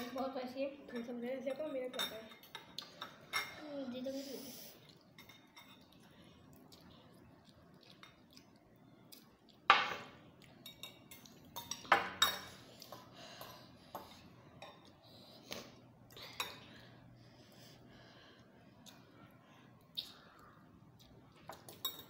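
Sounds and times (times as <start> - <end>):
forks clinking on glass bowls: 0.9 - 3.6, 9.8 - 14.8, 21.5 - 22.0.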